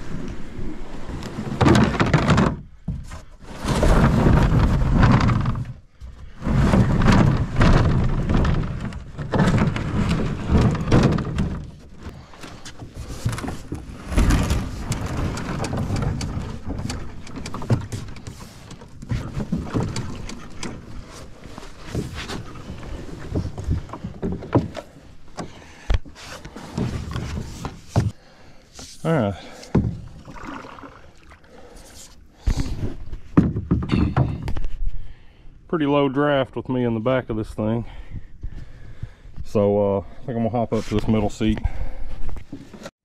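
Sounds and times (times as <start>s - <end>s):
canoe hull scraping: 0.0s - 35.2s, 40.5s - 43.0s
hollow thunks: 1.4s - 31.0s, 31.6s - 34.9s.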